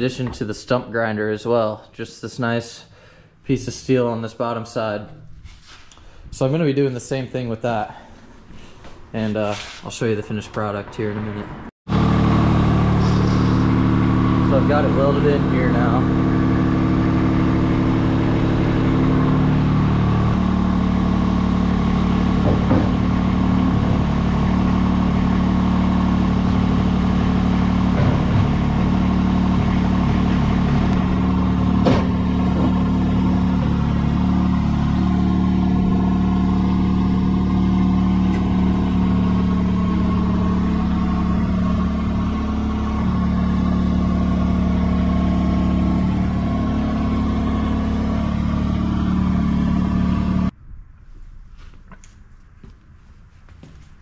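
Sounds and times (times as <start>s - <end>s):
skid steer engine running: 11.9s - 50.6s.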